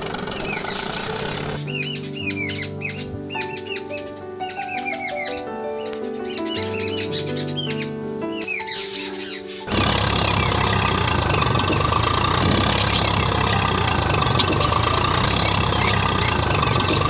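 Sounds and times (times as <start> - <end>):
tractor engine running: 0.0 - 1.6, 9.7 - 17.0.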